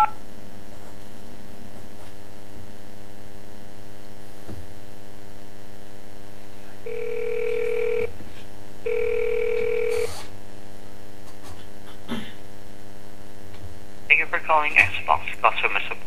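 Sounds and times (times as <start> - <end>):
electrical hum on telephone line: 0.0 - 16.0
telephone ringing tone: 6.9 - 8.1, 8.9 - 10.2.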